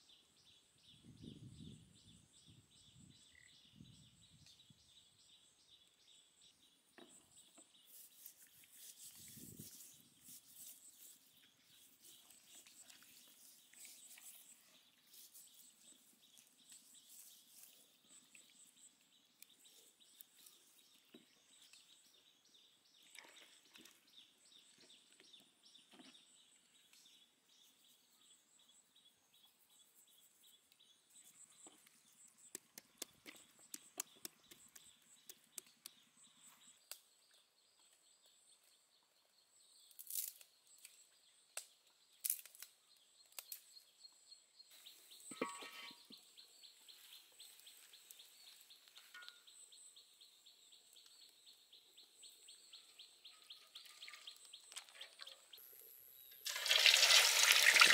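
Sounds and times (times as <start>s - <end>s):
faint high-pitched chirping: 0.0s - 56.5s
hands rubbing salt into skin: 7.9s - 15.6s.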